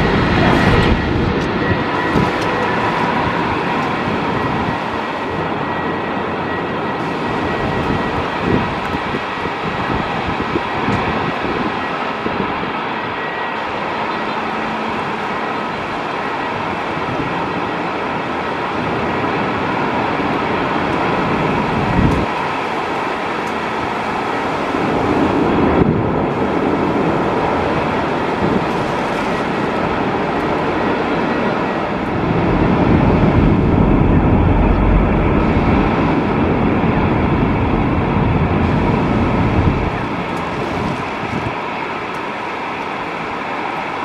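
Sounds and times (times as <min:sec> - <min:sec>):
deep rumble: 0:00.0 - 0:04.8, 0:29.9 - 0:41.6
distant jet engines: 0:00.0 - 0:44.0
gusting wind: 0:00.0 - 0:44.0
heavy rain: 0:00.0 - 0:44.0.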